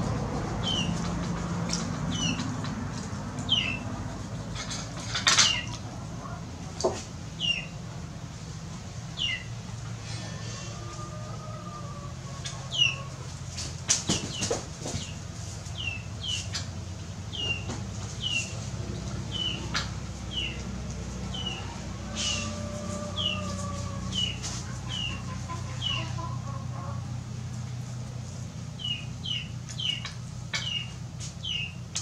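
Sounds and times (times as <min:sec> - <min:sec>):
bird chirping: 0:03.5 - 0:03.8, 0:07.4 - 0:07.8, 0:09.2 - 0:09.5, 0:17.3 - 0:18.5, 0:28.8 - 0:31.8.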